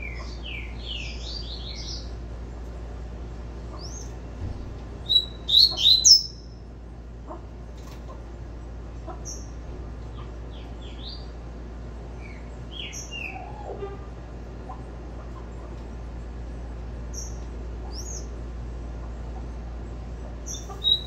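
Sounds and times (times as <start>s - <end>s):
bird singing sharp chirps: 5.1s - 6.5s, 20.5s - 21.0s.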